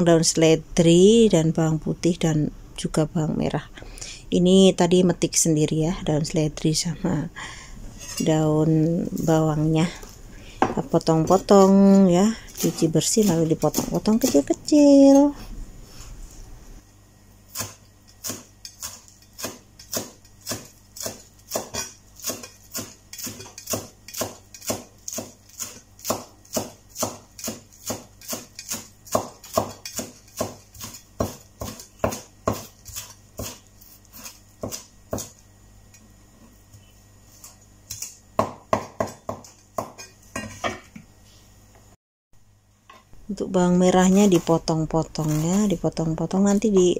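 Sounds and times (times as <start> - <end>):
cleaver chopping on wooden board: 19.4 - 33.6, 37.9 - 40.0.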